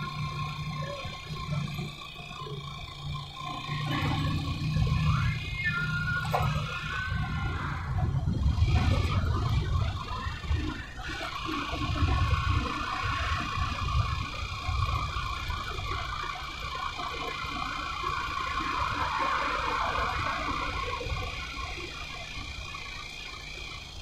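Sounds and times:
road and traffic noise: 0.0s - 24.0s
wind rumble on microphone: 7.2s - 15.8s.

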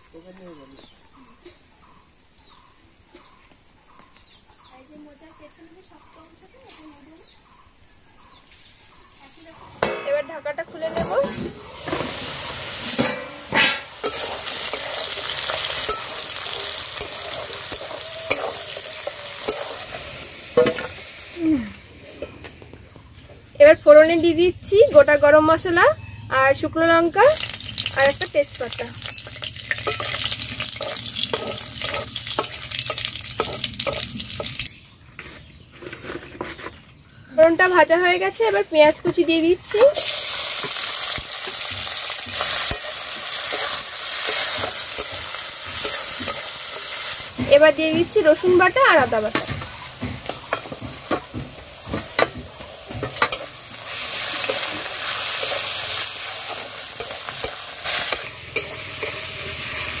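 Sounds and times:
spices sizzling in hot oil: 9.7s - 22.2s, 26.9s - 34.8s, 37.9s - 60.0s
metal spatula scraping and tapping: 12.9s - 20.9s, 29.0s - 36.8s, 41.4s - 55.8s, 56.4s - 59.6s.

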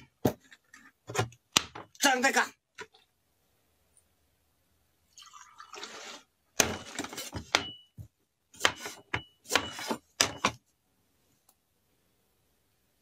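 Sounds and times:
liquid pouring into a glass: 5.1s - 6.2s
cleaver chopping on wooden table: 8.6s - 10.6s.

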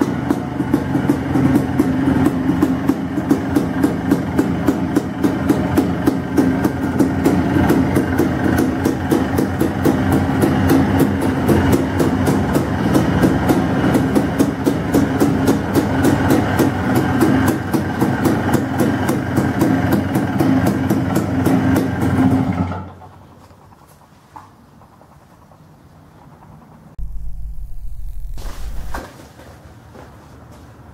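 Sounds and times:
two-stroke engine idling: 0.0s - 24.0s.

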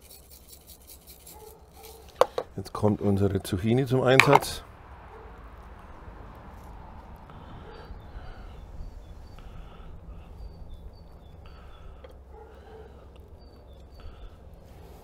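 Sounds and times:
small birds chirping: 7.4s - 15.0s.

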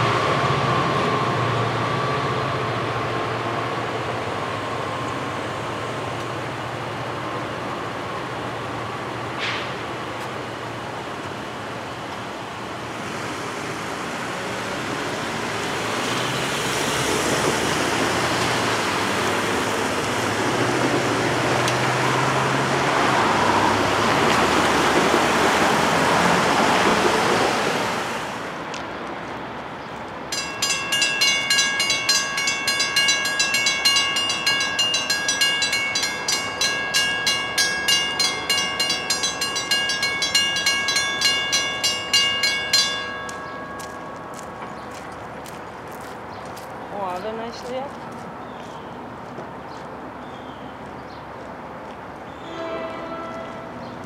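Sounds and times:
crossing bells clanging: 30.3s - 45.5s, 52.5s - 54.0s.

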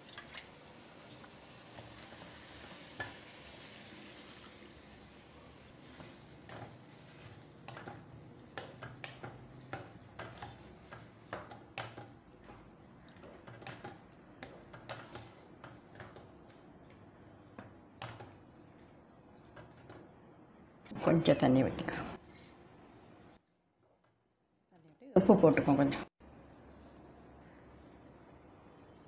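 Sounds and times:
faint sizzle: 0.0s - 23.4s
spatula scraping wok: 5.7s - 16.3s.

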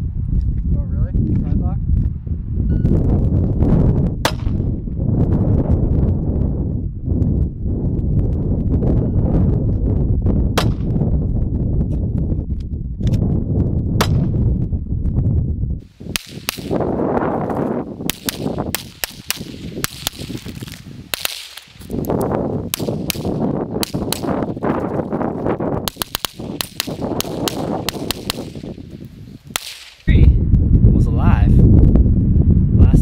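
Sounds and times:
low rumbling noise: 0.0s - 33.0s
gunshots: 16.1s - 16.9s, 18.0s - 21.9s, 22.7s - 24.5s, 25.8s - 28.8s, 29.5s - 30.1s.

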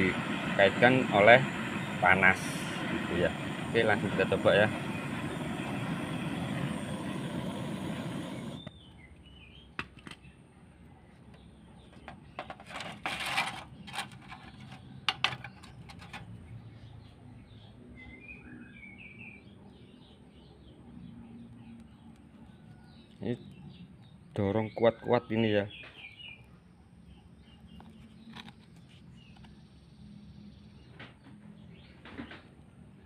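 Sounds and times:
blowtorch hissing: 0.0s - 8.7s
small bird chirping: 4.7s - 13.0s, 13.6s - 32.3s
clicks and knocks of handling: 11.3s - 16.3s.

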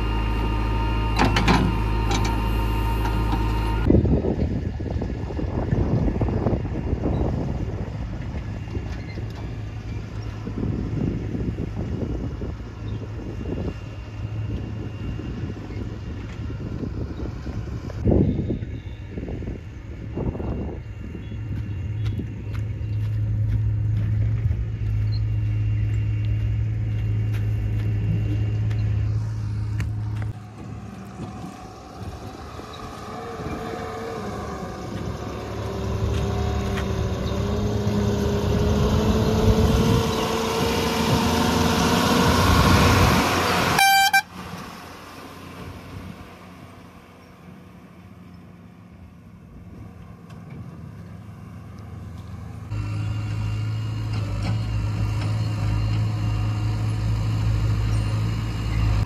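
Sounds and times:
heavy diesel engine: 0.0s - 59.0s
short horn toot: 43.7s - 44.4s.

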